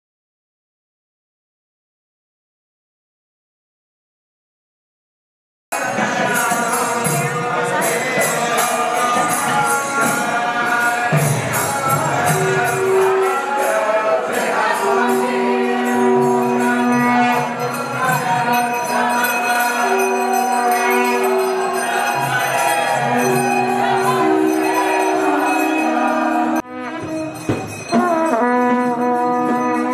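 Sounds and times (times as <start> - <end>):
voices chanting: 5.8 - 26.6
jingling hand cymbals: 5.8 - 29.9.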